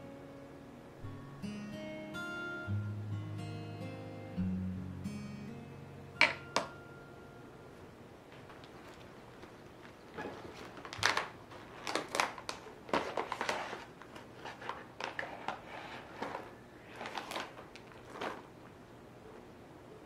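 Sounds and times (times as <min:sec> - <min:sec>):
plastic bag crinkling: 0:08.3 - 0:18.8.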